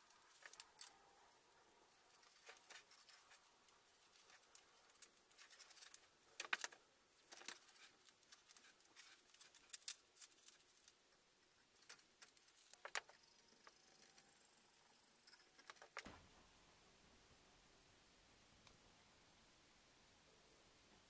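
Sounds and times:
tape peeling rustles and crackles: 0.0 - 1.2, 1.9 - 13.2.

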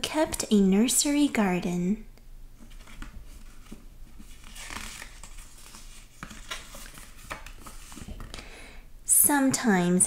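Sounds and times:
book page rustling: 2.6 - 8.3.

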